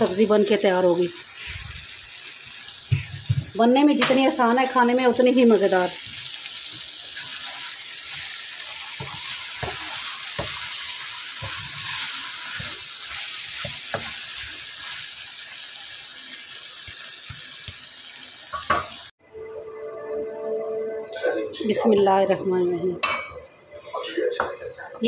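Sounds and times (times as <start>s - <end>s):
vegetables sizzling in a pan: 0.0s - 19.2s
wooden spatula scraping a pan: 7.2s - 15.1s.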